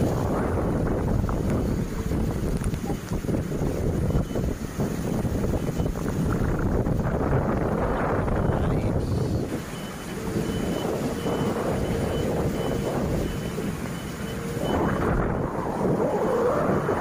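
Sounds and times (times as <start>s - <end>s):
heavy rain and wind: 0.0s - 17.0s
faint high electronic beep: 8.3s - 8.9s, 9.7s - 15.2s.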